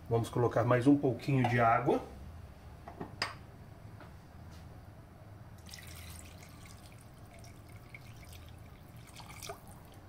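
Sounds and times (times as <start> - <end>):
water pouring into a pot: 5.6 - 10.0.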